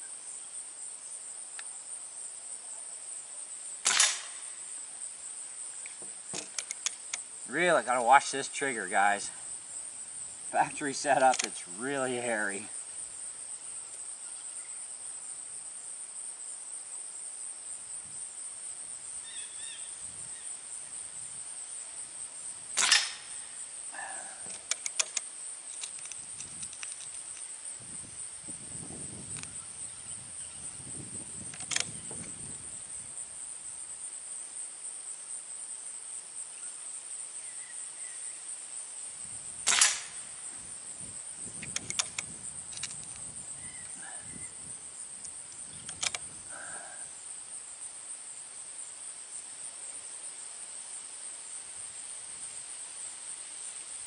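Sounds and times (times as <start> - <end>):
insects buzzing: 0.0 - 54.0
air rifle shots: 3.8 - 4.6, 22.8 - 23.5, 39.6 - 40.3
light clicks: 11.2 - 11.6, 24.5 - 27.5, 31.5 - 32.3, 41.6 - 43.3, 45.2 - 46.3.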